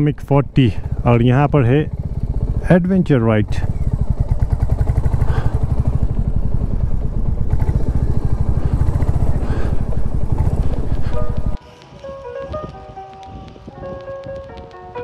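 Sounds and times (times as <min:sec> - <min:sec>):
motorcycle engine thumping: 0:03.4 - 0:11.6.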